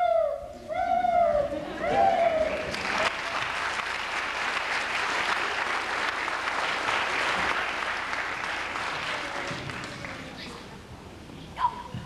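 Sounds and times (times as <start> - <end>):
audience applauding: 2.2 - 10.4.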